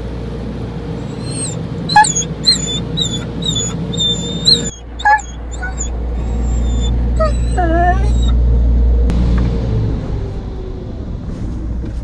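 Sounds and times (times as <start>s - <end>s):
car wash machinery hum: 0.0s - 12.0s
dog whining: 1.0s - 8.4s
dog yelp: 1.0s - 8.4s.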